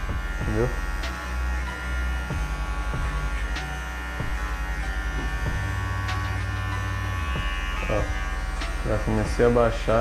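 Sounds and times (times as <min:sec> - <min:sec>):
hair clippers buzzing: 0:00.0 - 0:10.0.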